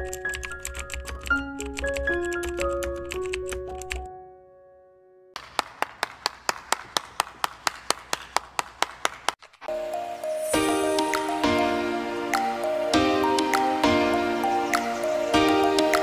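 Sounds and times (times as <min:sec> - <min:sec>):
person clapping: 0:05.4 - 0:09.6
light background music: 0:09.7 - 0:16.0.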